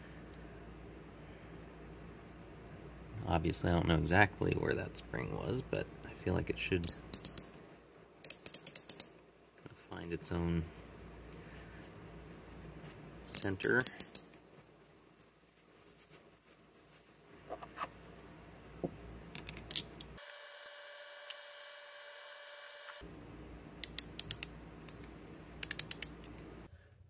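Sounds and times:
ratchet head parts clicking: 0:06.8 - 0:07.5, 0:08.2 - 0:09.2, 0:13.3 - 0:14.3, 0:19.3 - 0:20.2, 0:23.8 - 0:25.0, 0:25.6 - 0:26.3.

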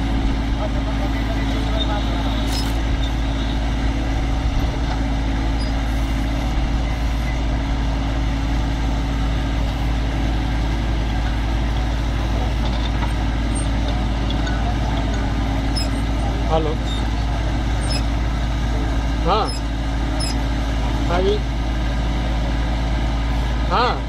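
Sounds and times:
tractor diesel engine running: 0:00.0 - 0:24.0
backhoe digging into soil: 0:01.3 - 0:03.3, 0:09.6 - 0:18.2.

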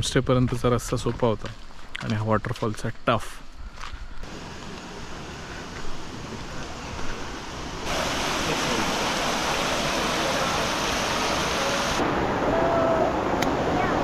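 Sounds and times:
waterfall rushing water: 0:04.3 - 0:14.0.

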